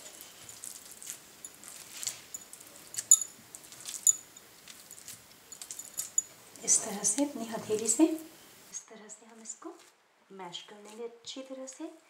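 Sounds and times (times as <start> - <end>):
metal bangles clinking: 0.0 - 7.1.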